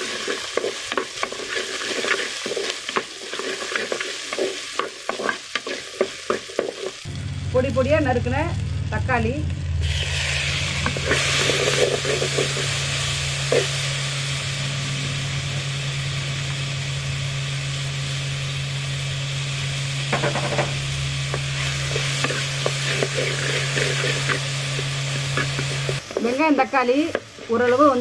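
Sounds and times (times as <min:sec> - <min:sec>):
wooden spatula scraping a pot: 0:00.0 - 0:07.0, 0:10.6 - 0:12.8, 0:21.6 - 0:28.0
vegetables sizzling in hot oil: 0:00.0 - 0:28.0
steady low hum: 0:07.0 - 0:28.0.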